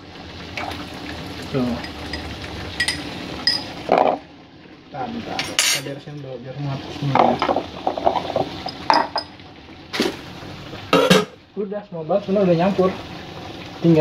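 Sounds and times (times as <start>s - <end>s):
metal kitchenware clinking: 1.8s - 4.2s, 5.4s - 6.0s, 7.4s - 9.3s.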